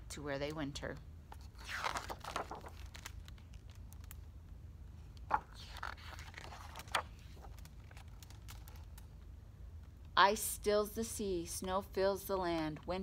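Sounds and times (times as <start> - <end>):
book pages rustling: 1.4 - 4.2, 5.1 - 9.1.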